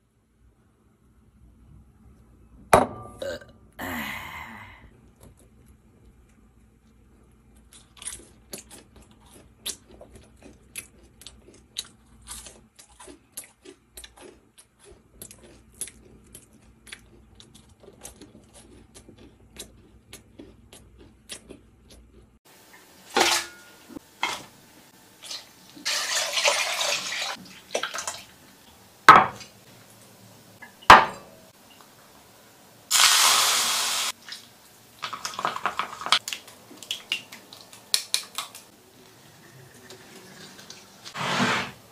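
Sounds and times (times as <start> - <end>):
crisp chewing of potatoes: 5.0 - 22.4.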